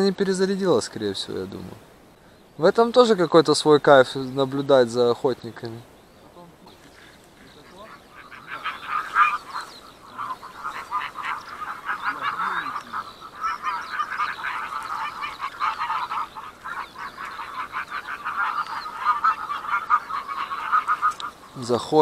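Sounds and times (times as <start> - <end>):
geese honking: 6.2 - 22.0.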